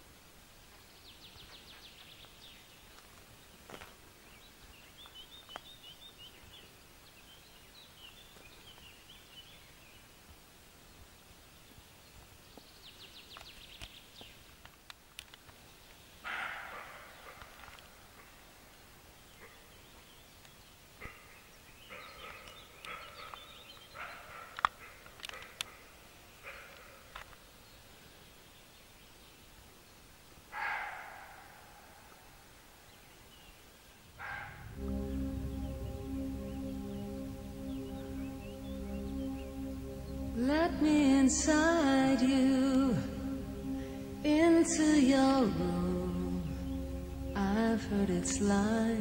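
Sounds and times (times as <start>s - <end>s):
faint background hiss: 0.0s - 49.0s
deer alarm barks: 16.2s - 17.6s, 21.9s - 23.4s, 24.0s - 27.1s, 30.5s - 31.9s, 34.2s - 34.6s
birdsong trills and twittering: 21.3s - 24.4s.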